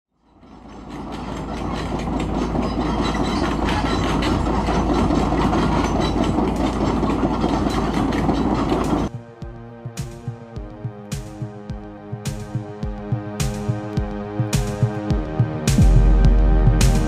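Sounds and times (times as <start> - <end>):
heavy mechanical rumble with clatter: 0.2 - 9.3.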